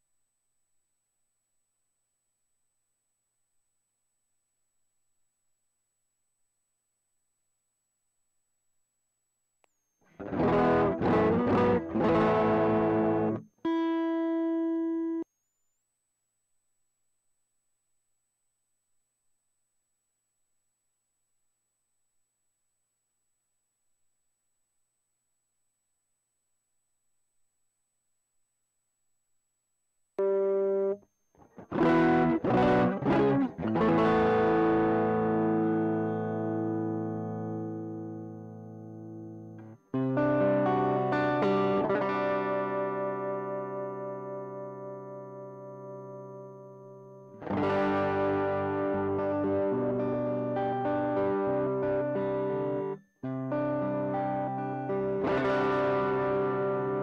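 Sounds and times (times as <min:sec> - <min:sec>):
electric guitar chords: 0:10.2 - 0:15.2, 0:30.2 - 0:31.0, 0:31.6 - 0:57.0.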